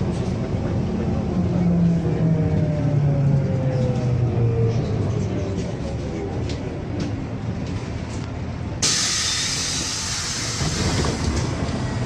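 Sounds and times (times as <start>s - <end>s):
bus engine rumbling: 0.0s - 12.0s
compressed air hiss: 8.8s - 10.9s.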